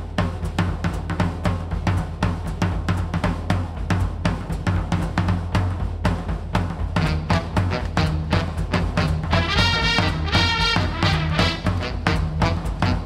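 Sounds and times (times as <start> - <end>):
booming bass drum: 0.0 - 13.0
drum kit playing: 0.0 - 13.0.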